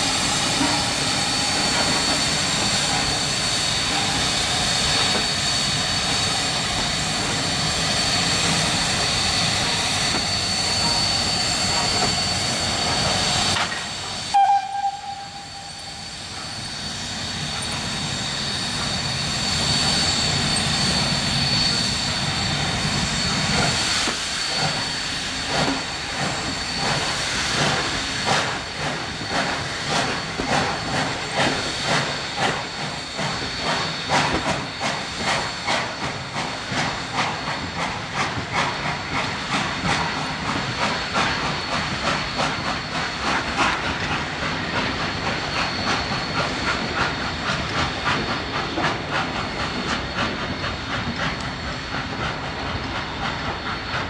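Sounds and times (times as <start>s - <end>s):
steam locomotive hissing: 0.0s - 54.0s
steam whistle blast: 14.1s - 17.0s.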